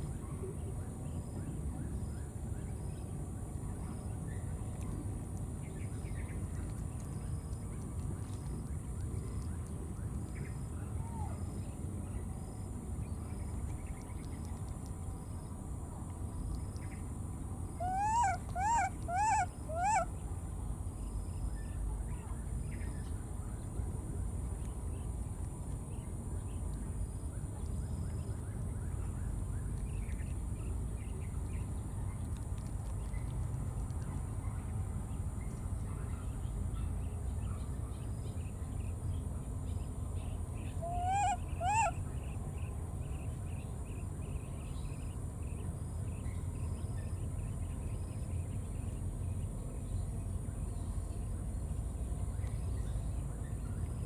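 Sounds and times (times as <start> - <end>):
low background rumble: 0.0 - 54.0
baby monkeys crying: 17.8 - 20.1, 40.8 - 41.9.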